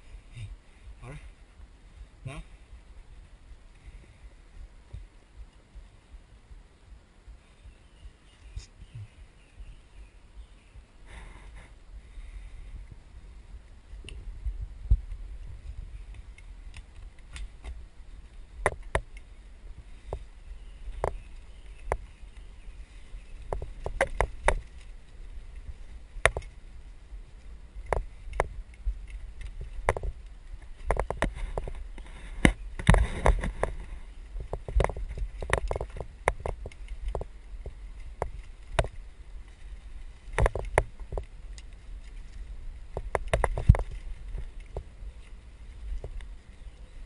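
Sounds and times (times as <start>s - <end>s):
low rumble: 0.0s - 47.0s
mountain bike rattling over bumps: 14.4s - 46.8s.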